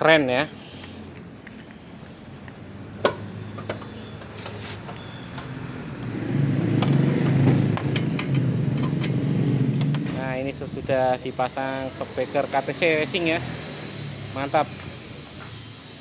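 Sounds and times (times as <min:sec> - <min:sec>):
motorcycle engine idling: 0:06.0 - 0:16.0.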